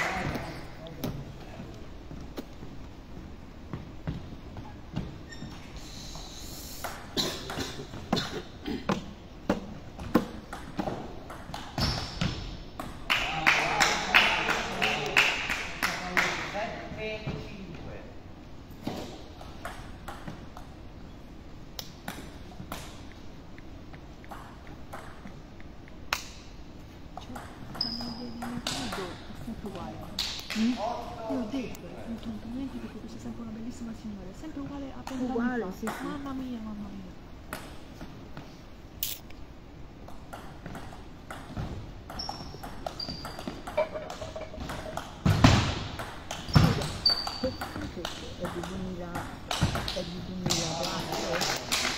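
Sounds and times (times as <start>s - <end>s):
shoes squeaking on wooden floor: 1.6s - 6.3s, 11.7s - 12.6s, 41.6s - 45.4s, 46.4s - 47.8s.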